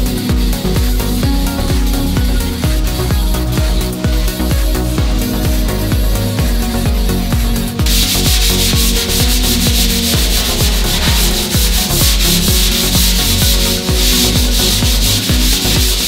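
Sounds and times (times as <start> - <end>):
music with steady beat: 0.0 - 16.0
sanding on steel: 7.9 - 16.0.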